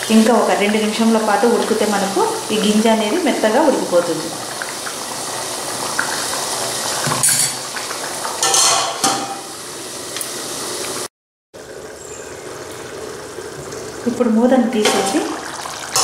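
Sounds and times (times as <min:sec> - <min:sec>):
spoon clinking and scraping pot: 0:07.2 - 0:07.6, 0:08.4 - 0:09.5
metal lid clattering onto pot: 0:08.4 - 0:09.5
curry bubbling in a pot: 0:11.6 - 0:16.0.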